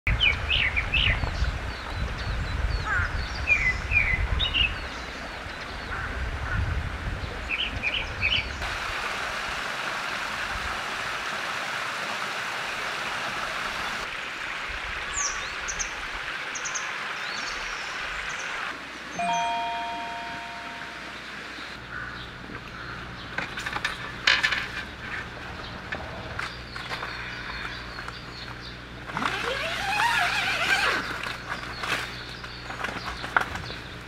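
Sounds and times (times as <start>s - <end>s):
stream running over rocks: 8.6s - 21.8s
birds chirping: 15.1s - 34.0s.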